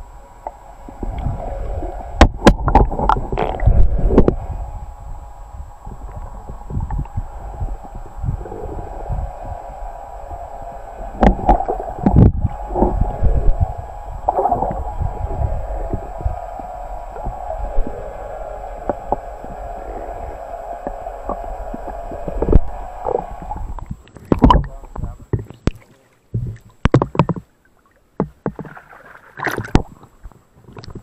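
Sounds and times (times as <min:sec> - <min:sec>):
muffled underwater hum: 0:00.0 - 0:27.5
dull underwater thumps: 0:23.8 - 0:27.5, 0:28.2 - 0:28.8.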